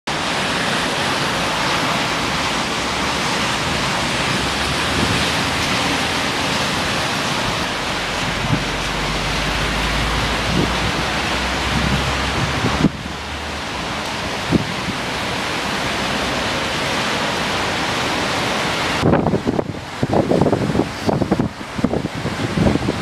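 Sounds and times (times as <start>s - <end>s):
wind: 0.0s - 23.0s
heavy rain: 0.1s - 23.0s.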